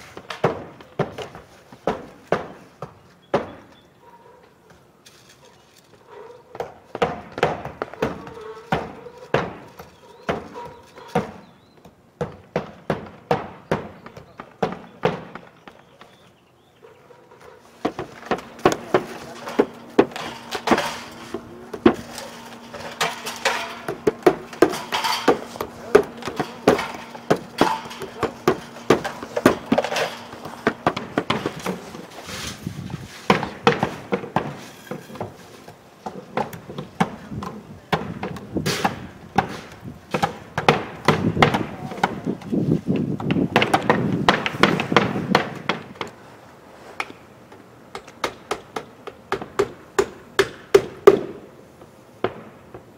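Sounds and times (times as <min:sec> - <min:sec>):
hammers nailing shingles: 0:00.0 - 0:03.8, 0:06.5 - 0:16.3, 0:17.7 - 0:32.4, 0:33.1 - 0:46.2, 0:47.0 - 0:52.9
steady low hum: 0:17.7 - 0:34.3.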